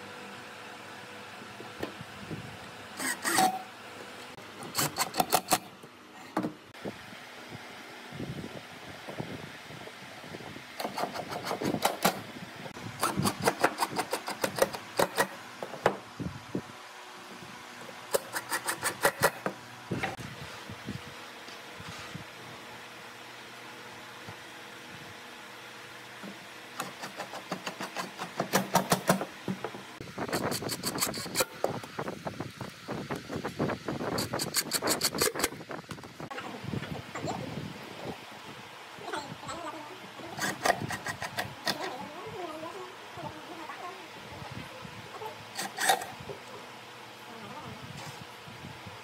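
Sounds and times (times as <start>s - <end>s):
impact driver driving screws: 3.0s - 3.6s, 4.6s - 5.7s, 13.0s - 15.4s.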